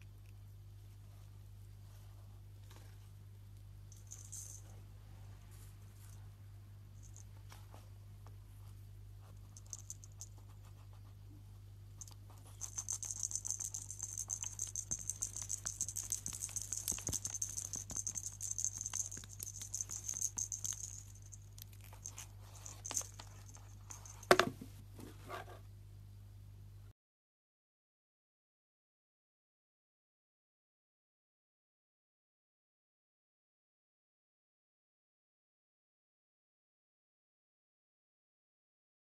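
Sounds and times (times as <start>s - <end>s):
fast dry rattling patter: 9.5s - 10.5s, 12.0s - 24.4s.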